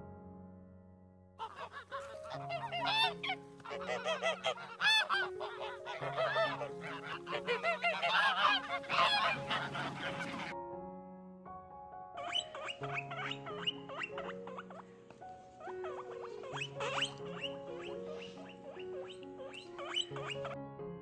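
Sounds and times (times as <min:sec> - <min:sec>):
soft background music: 0:00.0 - 0:21.0
geese honking: 0:01.4 - 0:10.6, 0:12.2 - 0:14.8, 0:15.6 - 0:20.6.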